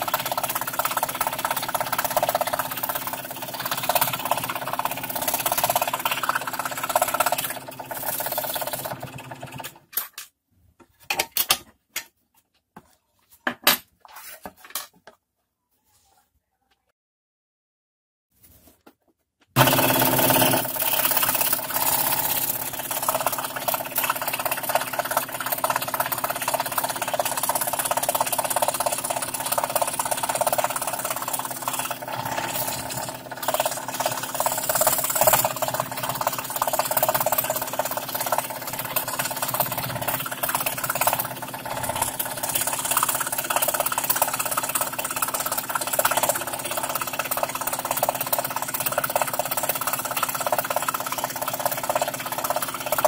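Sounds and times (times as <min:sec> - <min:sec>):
motor hum: 0:00.0 - 0:09.7, 0:19.6 - 0:53.0
scroll saw blade chatter: 0:01.0 - 0:09.2, 0:19.6 - 0:47.0.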